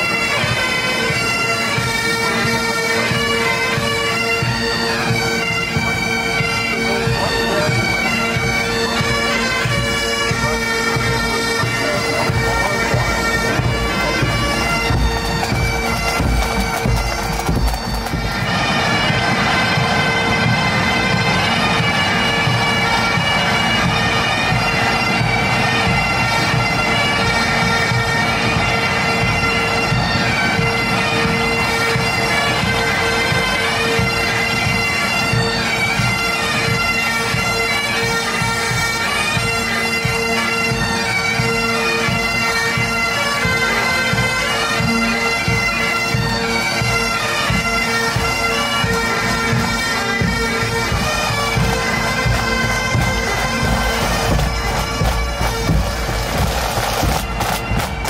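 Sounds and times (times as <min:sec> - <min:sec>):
bagpipes playing a march: 0:00.0 - 0:58.0
snare and bass drums: 0:14.9 - 0:18.3, 0:52.2 - 0:58.0.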